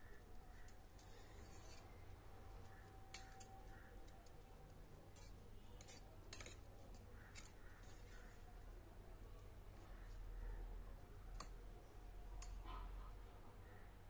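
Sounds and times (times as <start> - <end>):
metal spoon scraping pan: 1.0 - 2.0, 5.1 - 8.4.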